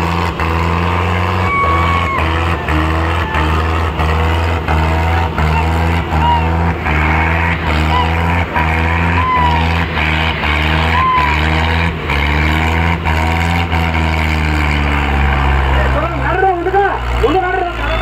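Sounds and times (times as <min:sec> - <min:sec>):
tractor engine labouring: 0:00.0 - 0:18.0
spectators whistling: 0:01.2 - 0:03.8, 0:04.9 - 0:09.8, 0:10.6 - 0:11.7, 0:17.6 - 0:18.0.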